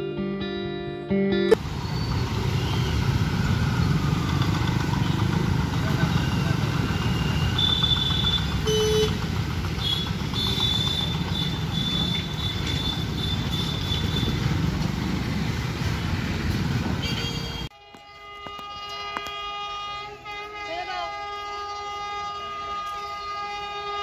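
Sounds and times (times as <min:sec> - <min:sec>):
vehicle engines running: 0:01.6 - 0:24.0
short horn beep: 0:06.2 - 0:09.2, 0:17.0 - 0:24.0.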